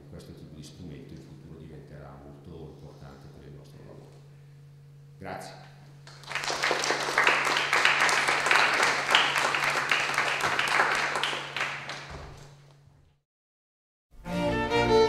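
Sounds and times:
low electrical hum: 0:00.0 - 0:13.2
audience applauding: 0:06.0 - 0:12.6.

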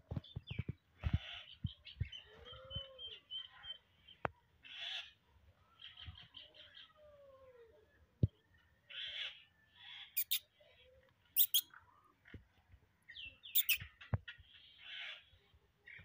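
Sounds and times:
short harsh bird calls: 0:09.0 - 0:10.5, 0:11.4 - 0:11.8, 0:13.4 - 0:13.9
birds calling: 0:11.4 - 0:12.5, 0:13.1 - 0:15.3.

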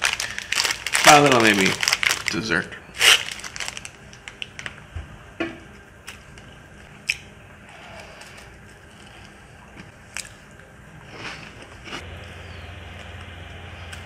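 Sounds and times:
plastic wrapper crinkling: 0:00.0 - 0:04.8
cracker being chewed: 0:06.1 - 0:12.0.

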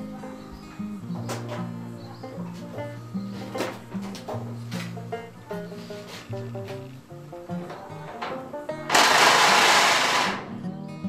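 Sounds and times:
plucked melody music: 0:00.0 - 0:11.0
loud harsh noise: 0:08.9 - 0:10.5.

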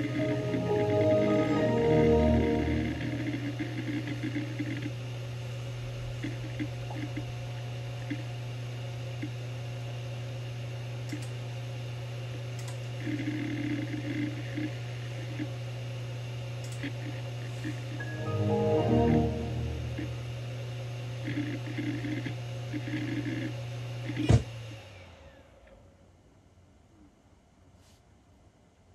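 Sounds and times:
hard drive spindle hum: 0:03.3 - 0:11.4.

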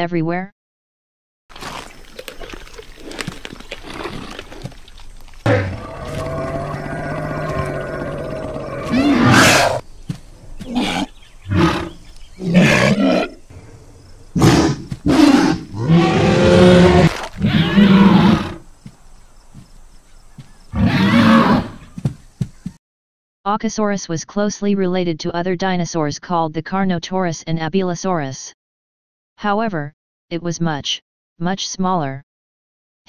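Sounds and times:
dinosaur roars: 0:05.4 - 0:09.8, 0:10.4 - 0:18.6, 0:20.7 - 0:21.9
dinosaur growling: 0:05.4 - 0:18.6.

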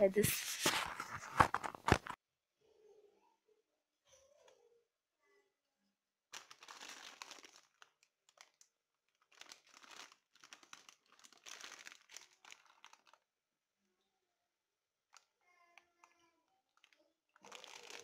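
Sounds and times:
plastic bag crinkling: 0:06.3 - 0:13.3, 0:16.8 - 0:18.0.

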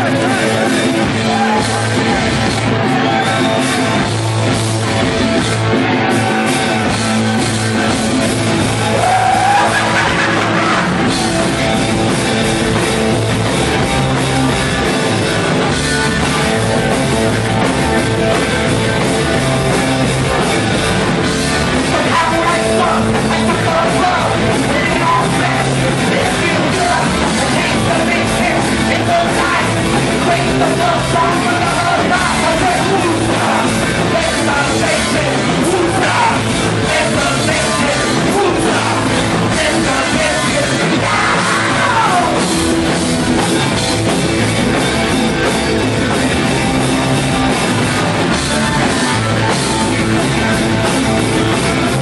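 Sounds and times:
shouted singing: 0:00.0 - 0:12.5, 0:19.7 - 0:42.6
punk rock band playing live: 0:00.0 - 0:52.0.

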